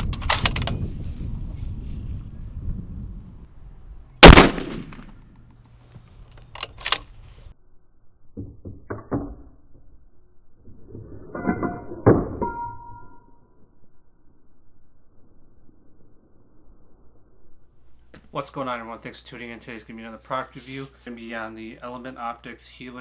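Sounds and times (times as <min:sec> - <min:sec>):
rifle shot: 0:04.2 - 0:05.2
metallic ring: 0:11.2 - 0:13.8.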